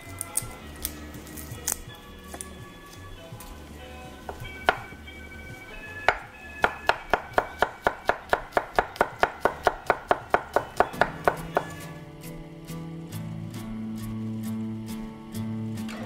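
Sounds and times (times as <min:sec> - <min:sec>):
knife chopping on wooden board: 0:06.1 - 0:11.8.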